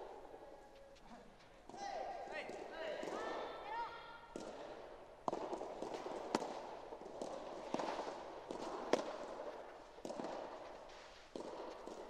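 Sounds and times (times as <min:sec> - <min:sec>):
ball bouncing on court: 0:04.3 - 0:12.0
racket striking ball: 0:05.2 - 0:12.0.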